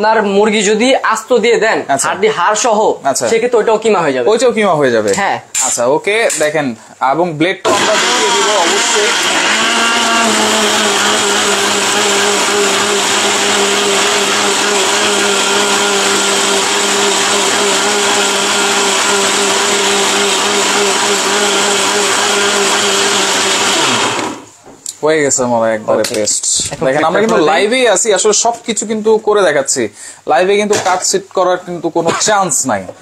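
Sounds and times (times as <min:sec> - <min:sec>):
blender motor whining: 0:07.6 - 0:24.5.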